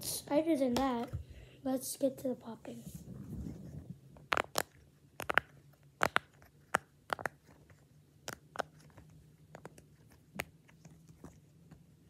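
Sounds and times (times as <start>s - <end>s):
fidget toy popping: 4.2s - 7.5s.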